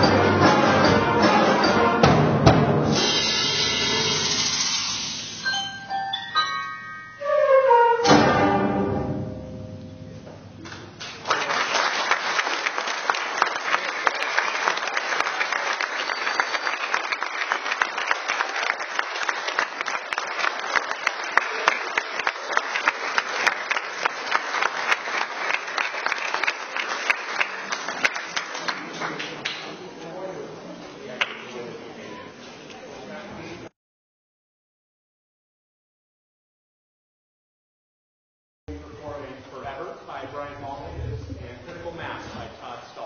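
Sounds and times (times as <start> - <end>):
audience clapping: 10.6 - 29.9, 31.2 - 31.6.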